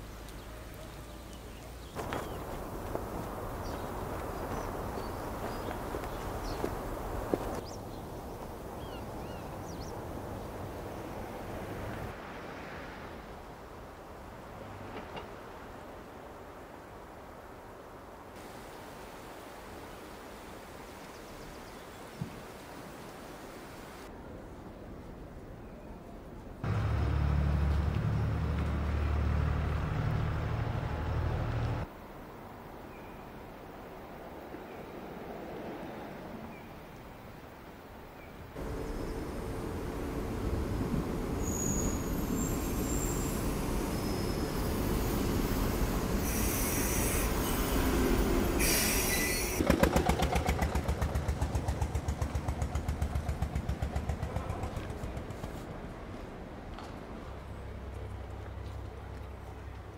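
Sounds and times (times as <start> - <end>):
tractor engine droning: 26.6 - 31.8, 38.6 - 44.6
train rumbling: 38.6 - 59.6
train wheel squeals: 41.4 - 49.6
rapid wheel clatter: 49.6 - 55.6.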